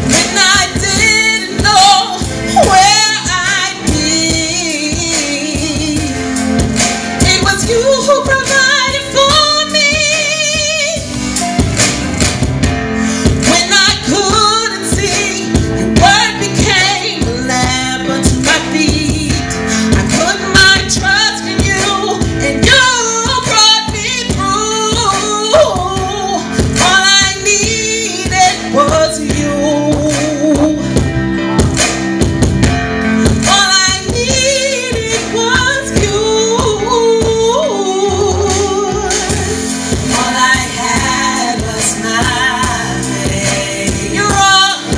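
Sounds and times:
woman singing into a microphone: 0:00.0 - 0:11.3, 0:13.0 - 0:31.6, 0:33.0 - 0:44.9
instrumental accompaniment with beat: 0:00.0 - 0:44.9.

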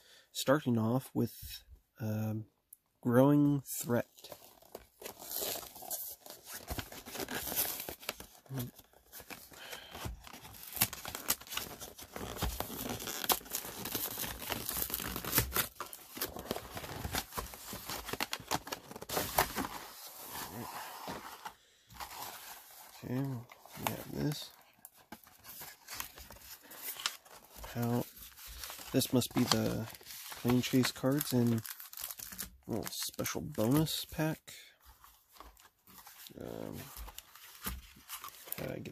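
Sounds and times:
plastic wrap tearing and crinkling: 0:04.4 - 0:21.3, 0:25.2 - 0:34.0.

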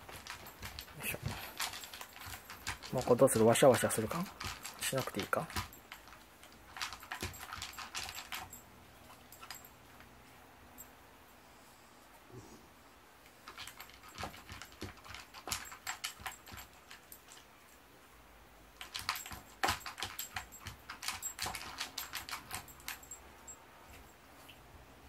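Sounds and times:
dog crunching kibble: 0:00.0 - 0:09.6, 0:13.4 - 0:17.4, 0:18.8 - 0:23.0.

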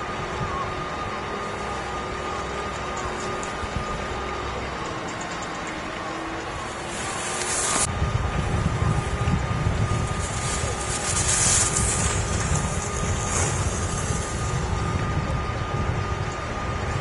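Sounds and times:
wind buffeting microphone: 0:06.4 - 0:17.0
skis scraping on hard snow: 0:06.8 - 0:07.9, 0:10.1 - 0:14.5.

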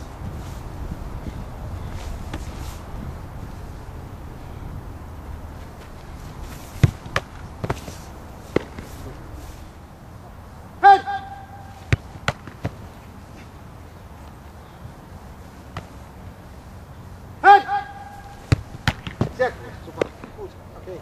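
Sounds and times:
football thuds: 0:01.1 - 0:03.2, 0:05.5 - 0:09.4, 0:11.7 - 0:13.6, 0:15.6 - 0:16.2, 0:17.8 - 0:20.5
person shouting: 0:10.8 - 0:11.8, 0:17.4 - 0:18.4.

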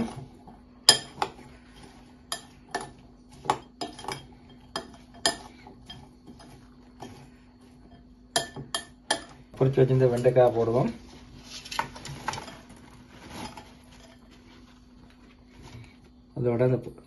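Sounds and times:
spoon clinking against glass bowl: 0:00.9 - 0:01.3, 0:02.3 - 0:06.6, 0:07.9 - 0:09.4.

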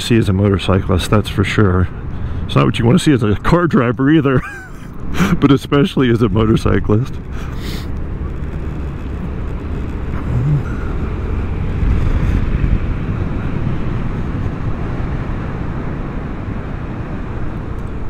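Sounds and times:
wind rush while riding: 0:06.4 - 0:18.0.

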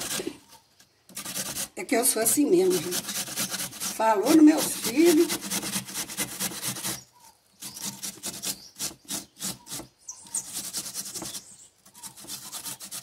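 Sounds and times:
onion grated on metal grater: 0:01.2 - 0:07.0.

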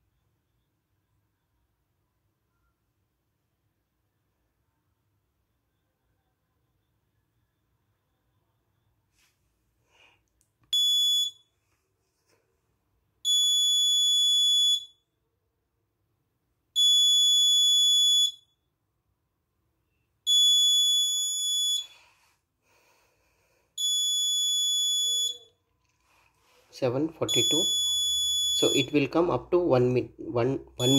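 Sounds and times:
high-pitched alarm beeps: 0:23.8 - 0:25.5, 0:27.2 - 0:29.2.

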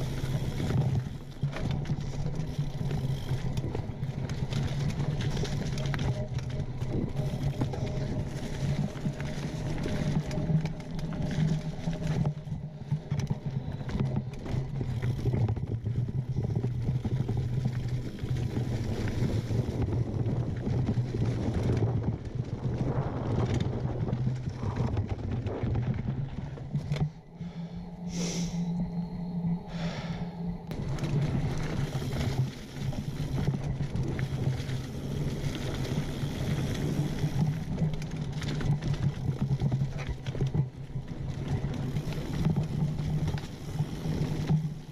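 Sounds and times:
bike chain and frame clattering: 0:00.0 - 0:27.6
bike tyres crunching on dirt: 0:00.0 - 0:28.7, 0:29.7 - 0:44.9
steady low buzz: 0:25.5 - 0:33.9.

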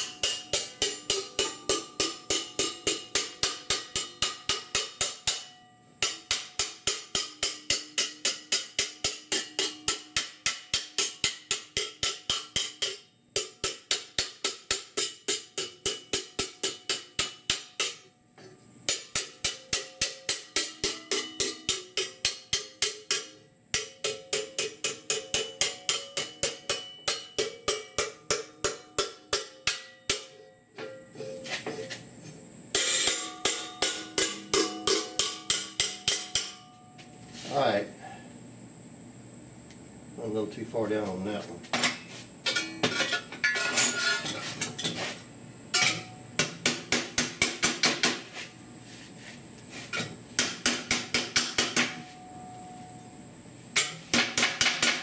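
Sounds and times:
hammer striking sheet steel: 0:00.0 - 0:31.0, 0:32.7 - 0:36.8, 0:45.8 - 0:48.5, 0:49.9 - 0:53.0, 0:53.8 - 0:55.0.

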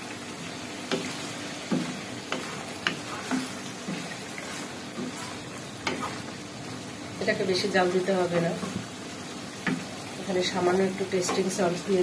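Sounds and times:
vegetables sizzling in a wok: 0:00.0 - 0:12.0
spatula scraping and knocking wok: 0:00.8 - 0:06.4.

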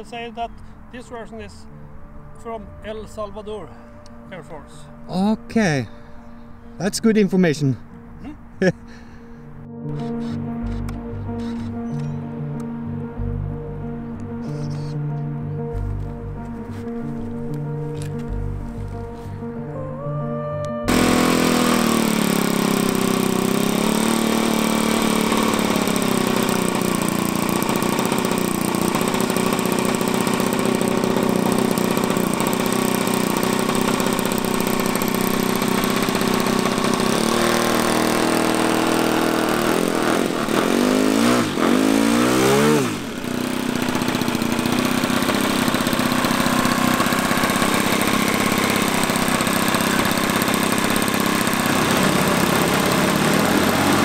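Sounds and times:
model aircraft engines running: 0:20.9 - 0:54.0.

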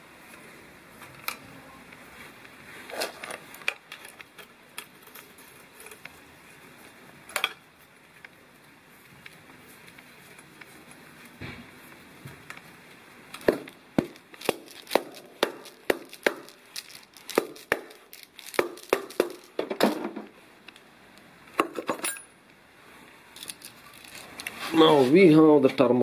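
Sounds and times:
tools handled: 0:21.6 - 0:22.3
metallic clinks and knocks: 0:21.6 - 0:22.4.

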